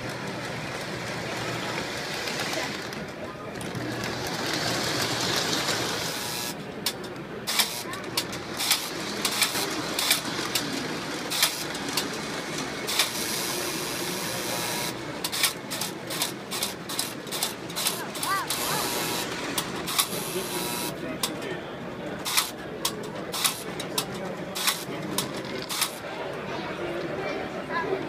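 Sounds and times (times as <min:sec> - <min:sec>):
model train whirring: 0:00.0 - 0:21.0, 0:22.2 - 0:26.1
wheels clicking over rail joints: 0:06.8 - 0:13.2.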